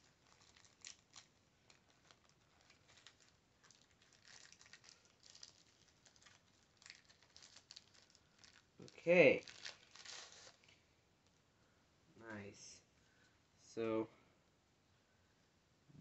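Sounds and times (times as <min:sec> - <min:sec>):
wax paper wrapper crinkling: 0:00.0 - 0:10.8.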